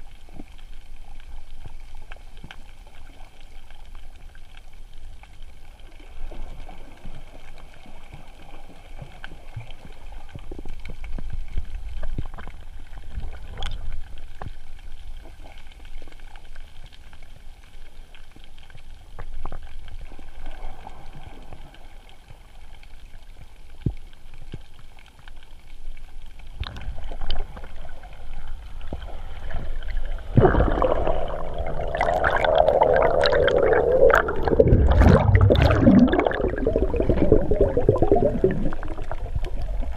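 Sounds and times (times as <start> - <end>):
muffled underwater rumble: 0.0 - 39.9
rush of bubbles and water: 26.4 - 39.9.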